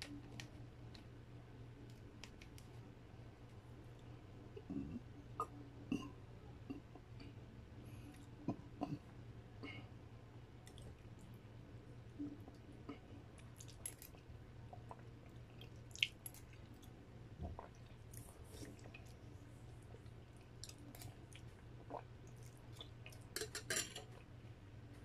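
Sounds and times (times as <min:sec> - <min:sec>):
chewing soup: 0:10.6 - 0:11.3, 0:12.2 - 0:24.4.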